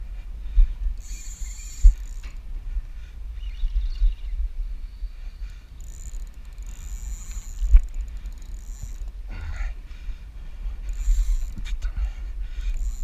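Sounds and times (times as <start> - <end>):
fishing reel drag buzzing: 1.0 - 2.5, 5.2 - 9.9, 10.5 - 13.0.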